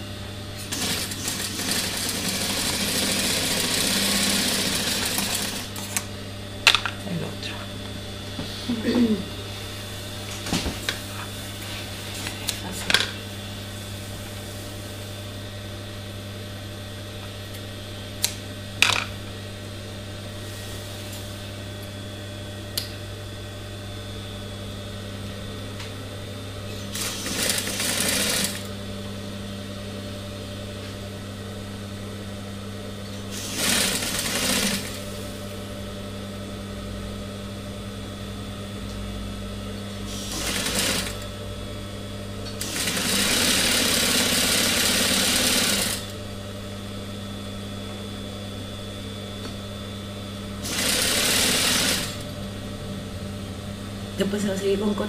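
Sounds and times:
machine stitching through fabric: 0.6s - 6.0s, 26.8s - 28.7s, 33.3s - 35.0s, 40.1s - 41.2s, 42.6s - 46.1s, 50.6s - 52.3s
sewing machine motor humming: 0.6s - 6.1s, 26.7s - 28.8s, 33.3s - 35.4s, 40.1s - 41.3s, 42.5s - 46.2s, 50.6s - 52.4s.

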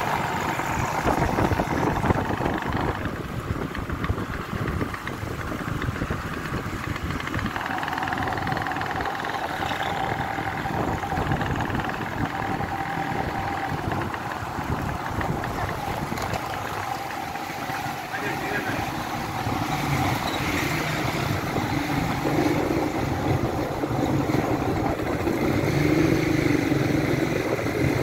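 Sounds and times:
motorcycle engine running: 0.0s - 28.0s
wind rumbling on microphone: 0.0s - 28.0s
high whine: 7.0s - 25.2s.

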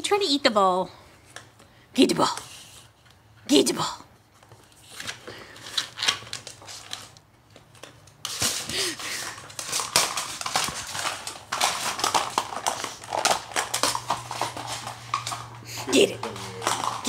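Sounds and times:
dog chewing plastic toy: 7.6s - 17.0s.

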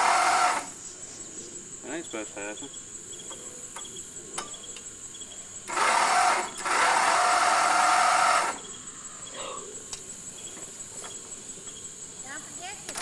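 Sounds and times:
electric starter cranking engine: 0.0s - 0.8s, 5.6s - 8.7s
crickets chirping: 0.0s - 13.0s.

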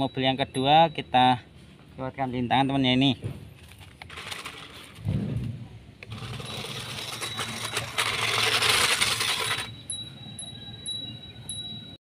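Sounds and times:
light chime tones: 0.0s - 1.7s, 6.2s - 12.0s
toy truck motor whirring: 4.0s - 5.0s, 6.0s - 10.5s
steady high tone: 6.1s - 12.0s.

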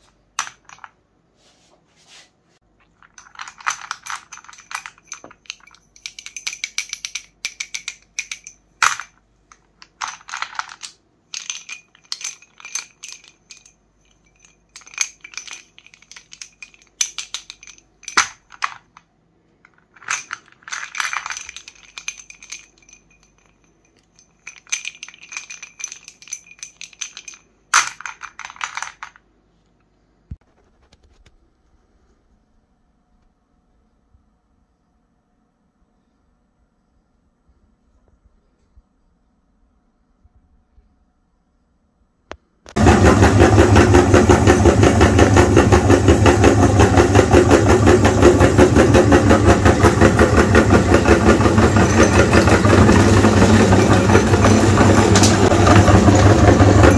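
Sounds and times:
chalk sticks clicking and clattering: 0.0s - 1.0s, 2.8s - 29.2s.

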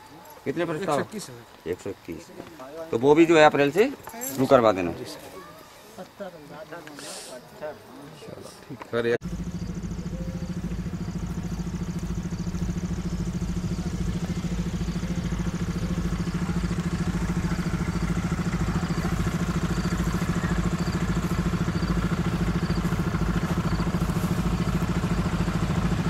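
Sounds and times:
engine running: 9.2s - 26.0s.

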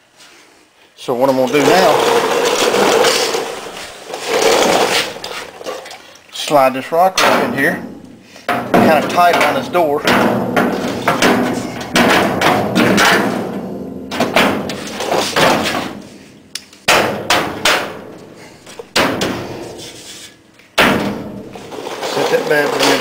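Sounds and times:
sheet-metal bangs and clanks: 7.1s - 20.0s, 20.7s - 23.0s.

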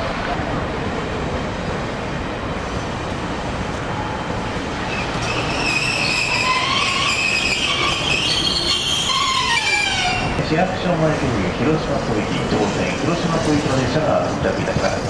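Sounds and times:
streetcar rumbling on track: 0.0s - 15.0s
wheels squealing: 4.8s - 10.4s.

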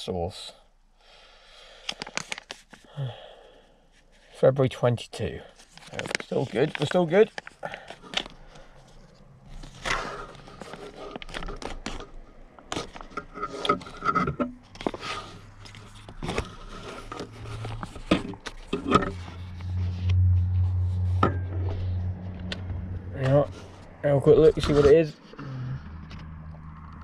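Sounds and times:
foil pouch crinkling and tearing: 1.8s - 3.0s, 5.6s - 13.2s.

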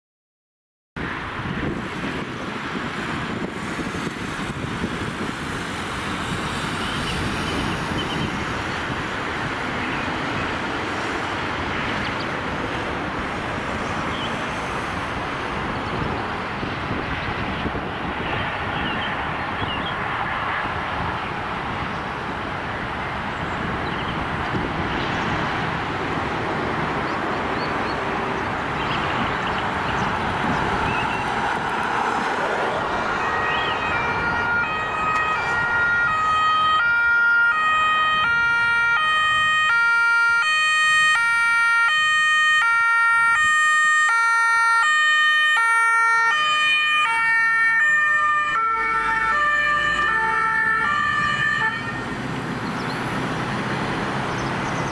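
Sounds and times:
road traffic passing: 1.0s - 54.9s
two-tone emergency siren: 32.7s - 52.2s.

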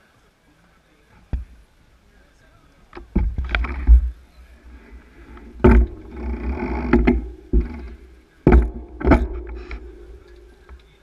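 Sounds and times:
handling knocks on microphone: 5.3s - 10.8s.

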